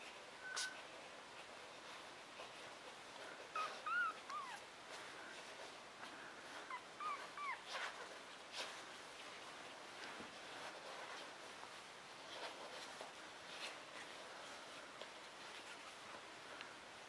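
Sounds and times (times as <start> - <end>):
puppy squeaking and whimpering: 3.5 - 4.6, 6.7 - 7.8.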